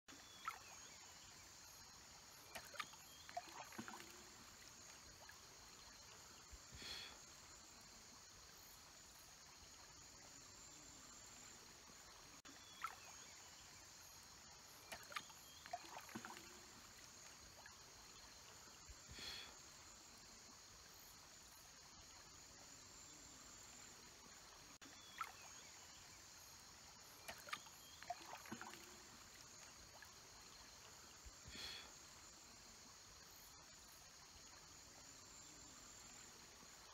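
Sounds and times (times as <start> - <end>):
splashes: 0.1 - 19.5, 24.2 - 32.5.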